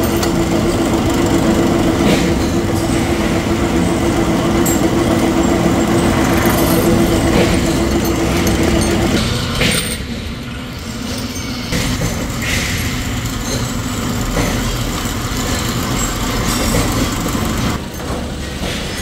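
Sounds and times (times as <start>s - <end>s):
machinery running: 0.0s - 19.0s
low hum: 2.4s - 9.2s.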